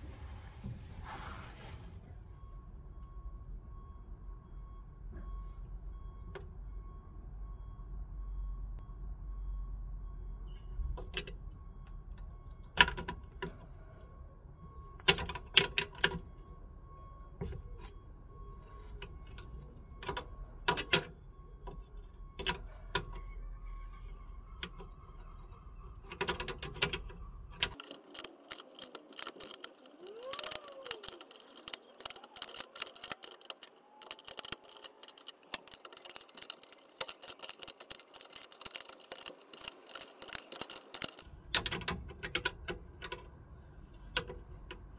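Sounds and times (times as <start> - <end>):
small metallic ticks: 26.2 - 43.2.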